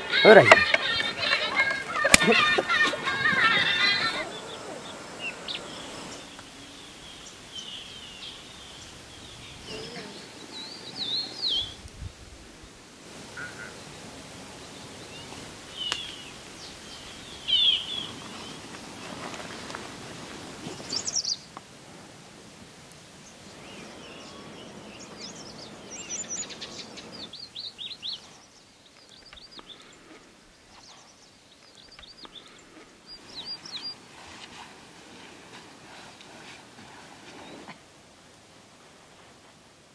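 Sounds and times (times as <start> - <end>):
bird warbling: 0.0 - 10.3, 13.3 - 14.0
birds chirping and whistling: 0.0 - 11.8, 14.6 - 19.8, 20.7 - 21.5, 23.5 - 30.0, 30.6 - 34.1
steady outdoor hiss: 0.0 - 39.9.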